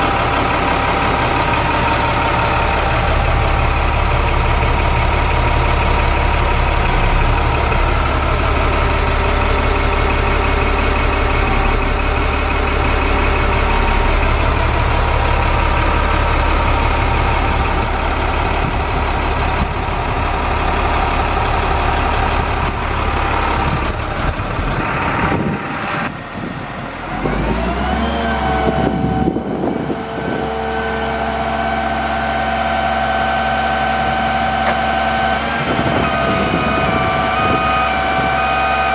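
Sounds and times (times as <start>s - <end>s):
truck engine idling: 0.0s - 38.9s
hydraulic whine: 27.2s - 38.9s.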